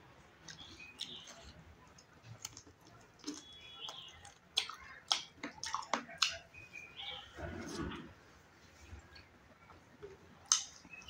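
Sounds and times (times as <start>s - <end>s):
close chewing: 0.4s - 6.4s.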